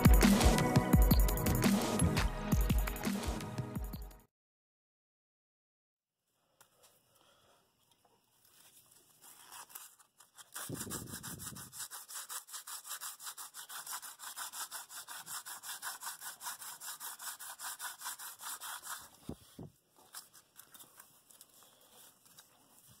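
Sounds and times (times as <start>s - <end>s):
sandpaper rubbing: 9.0s - 23.0s.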